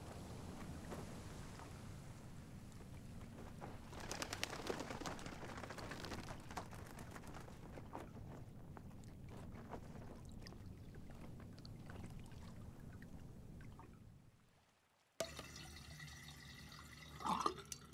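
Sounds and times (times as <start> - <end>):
water lapping gently: 0.0 - 14.9
water drips and trickles: 5.8 - 17.9.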